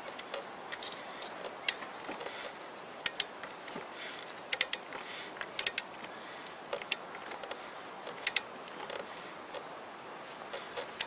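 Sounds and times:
torque wrench ratchet clicks: 3.0s - 3.3s, 4.5s - 4.8s, 5.5s - 5.9s, 6.7s - 9.6s.

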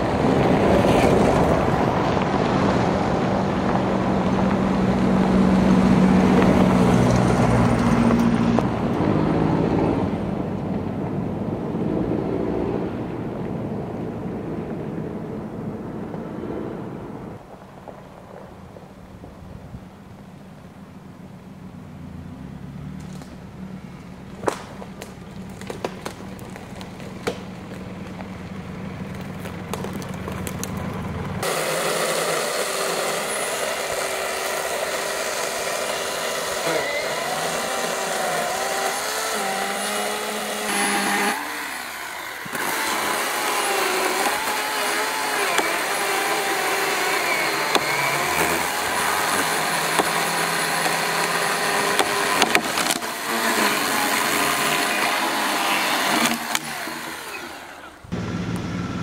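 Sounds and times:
vehicle engine rumbling: 0.0s - 59.0s
chainsaw cutting log: 24.4s - 28.3s, 31.4s - 58.8s.

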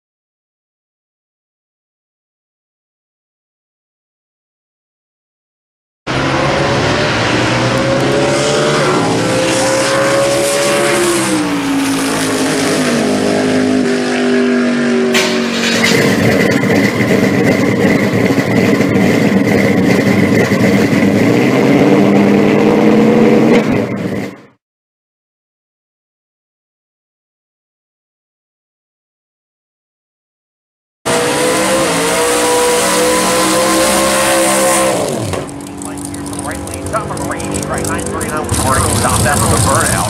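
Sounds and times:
dense engine drone: 6.1s - 24.6s, 31.1s - 40.0s
drag car engine at full throttle: 6.1s - 24.6s, 31.1s - 40.0s.

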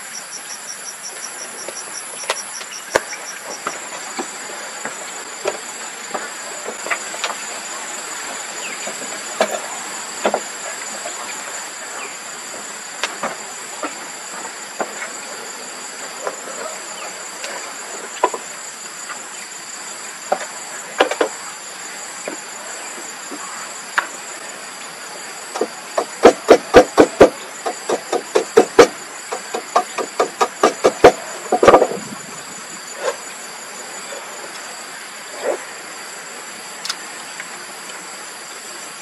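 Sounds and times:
insect chorus droning: 0.0s - 39.0s
rapid loud knocks: 25.6s - 32.0s.

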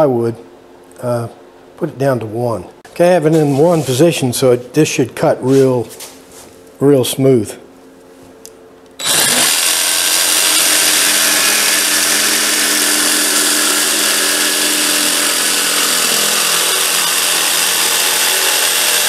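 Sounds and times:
jigsaw cutting plywood: 9.0s - 19.0s.

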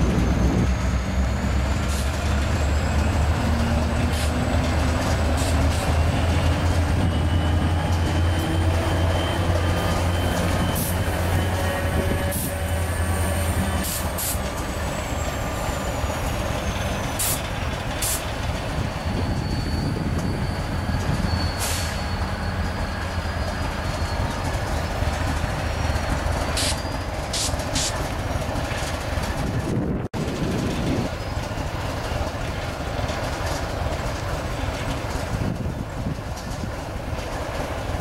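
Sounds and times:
diesel locomotive rumbling: 0.0s - 38.0s
air brake hisses: 13.8s - 14.5s, 17.2s - 17.4s, 18.0s - 18.3s, 21.6s - 22.1s.

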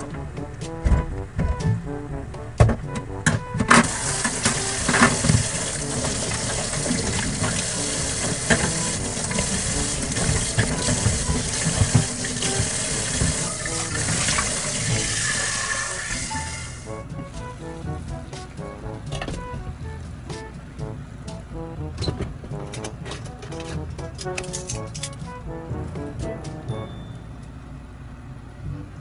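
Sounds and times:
tap water running into sink: 3.8s - 16.8s.

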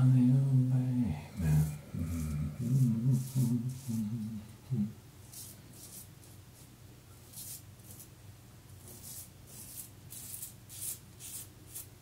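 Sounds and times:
man humming: 0.0s - 5.0s
razor scraping stubble: 1.4s - 4.2s, 5.3s - 6.1s, 8.8s - 11.9s.

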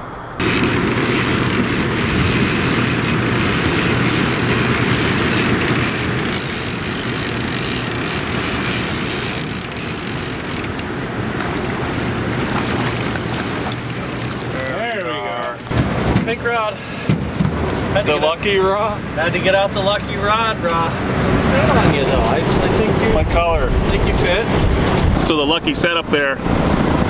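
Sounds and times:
water rushing: 0.4s - 15.8s
outboard motor humming: 0.4s - 16.1s.

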